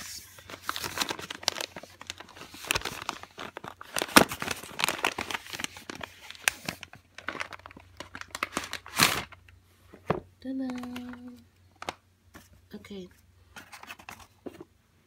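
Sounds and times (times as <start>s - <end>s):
cardboard box crinkling and crackling: 0.0s - 9.4s.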